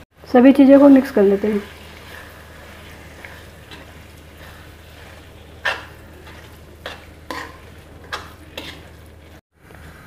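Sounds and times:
spatula scraping metal pan: 2.0 - 9.4.

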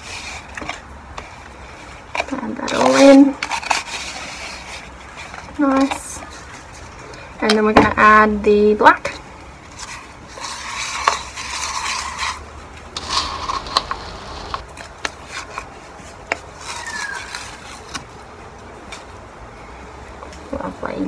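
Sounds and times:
stick scraping wet concrete: 9.8 - 17.9.

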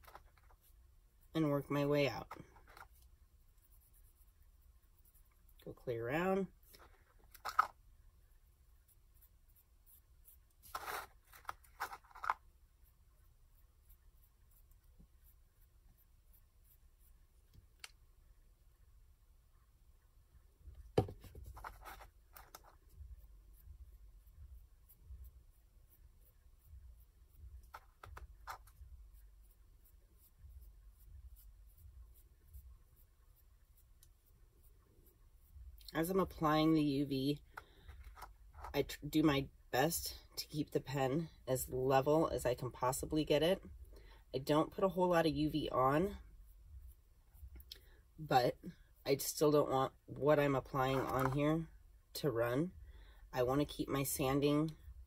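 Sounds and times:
fingertip scraping plastic cup: 10.7 - 12.4.

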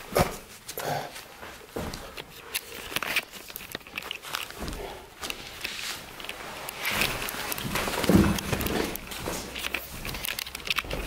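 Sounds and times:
footsteps on wooden floorboards: 1.3 - 2.3, 4.4 - 10.2.

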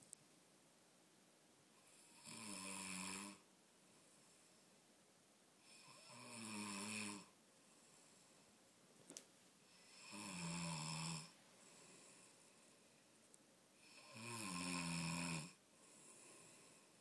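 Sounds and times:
quiet breathing: 1.7 - 8.9, 9.5 - 17.0
man snoring: 1.8 - 3.4, 5.6 - 7.3, 9.8 - 12.1, 13.8 - 16.8.

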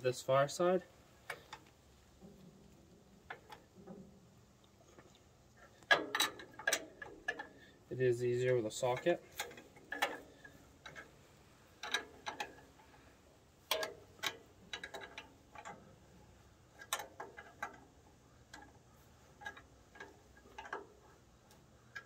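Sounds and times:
wrench clicking on metal bolts: 5.6 - 7.6, 8.4 - 11.2, 11.8 - 13.0, 13.6 - 22.0.

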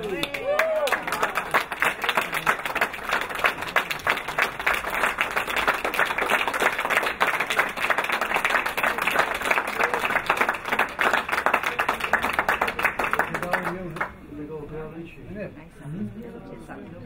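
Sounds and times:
crowd applauding: 0.0 - 14.1.

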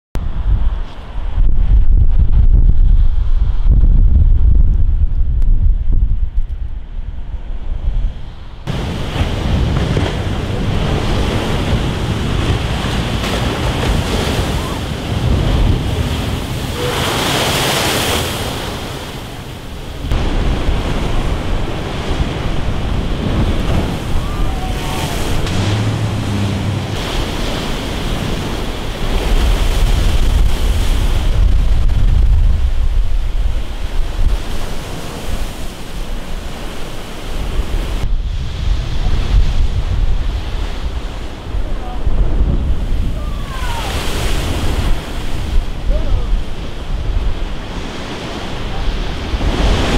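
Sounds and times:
wind buffeting microphone: 0.2 - 49.9
storm surf crashing on rocks: 8.6 - 49.9.

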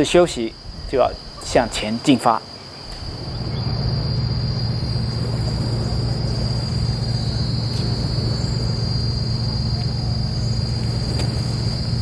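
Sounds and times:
high-pitched insect buzz: 2.5 - 12.0
low rumbling drone: 2.8 - 12.0.

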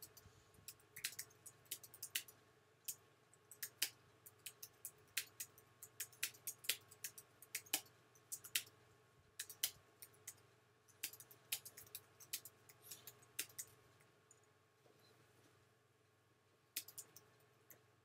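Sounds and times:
computer keyboard typing: 0.0 - 8.7, 9.4 - 14.5, 16.8 - 17.3
faint steady hum: 0.0 - 18.0.

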